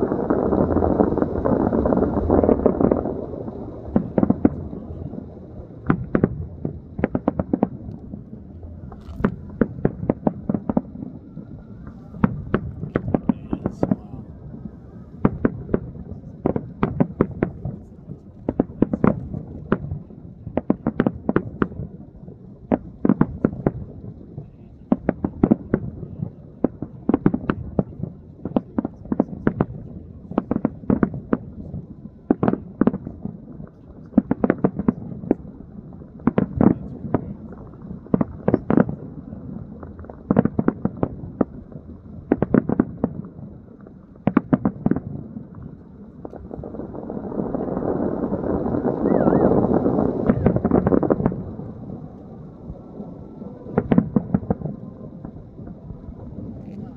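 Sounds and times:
rush of noise: 0.0 - 20.6, 45.5 - 56.9.

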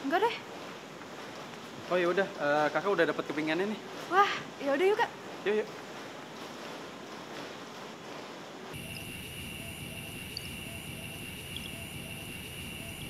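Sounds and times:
background hiss: 0.0 - 13.0
insects chirring: 8.8 - 13.0
soft low repeating call: 8.8 - 13.0.

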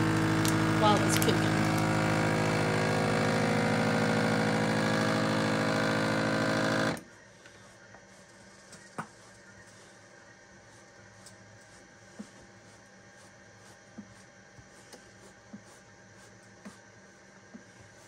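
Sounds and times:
vacuum sealer pump running: 0.0 - 8.6.

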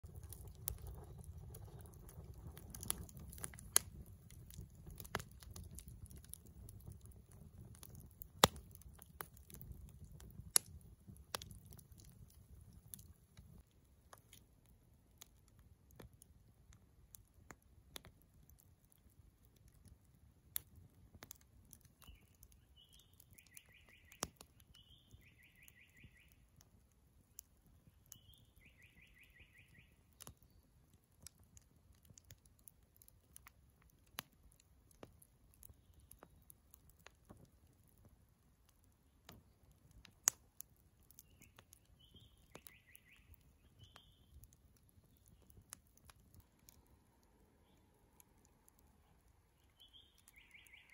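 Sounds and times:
wood fire crackling and popping: 0.0 - 50.9
bird trills: 28.2 - 29.9, 41.2 - 44.3, 49.6 - 50.9.

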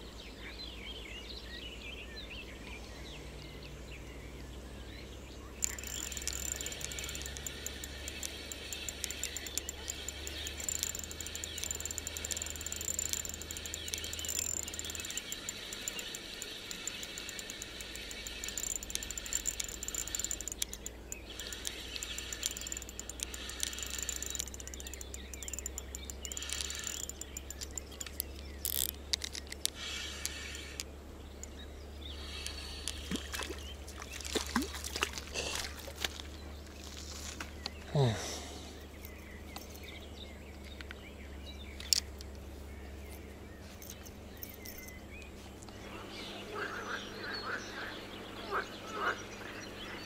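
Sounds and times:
insects chirring: 5.6 - 42.2.

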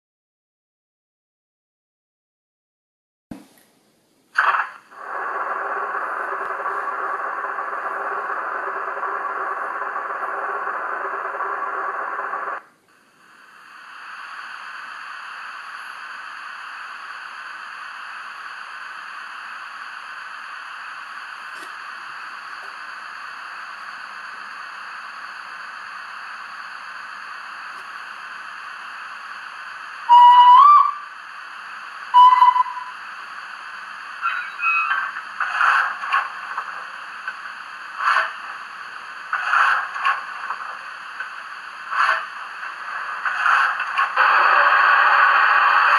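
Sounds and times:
steam hiss from small speaker: 13.2 - 45.9
steam locomotive whistle blasts: 30.1 - 31.0, 32.2 - 32.9.

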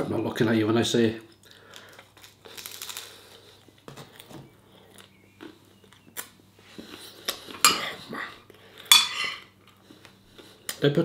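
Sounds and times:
man chewing food: 1.3 - 10.8.

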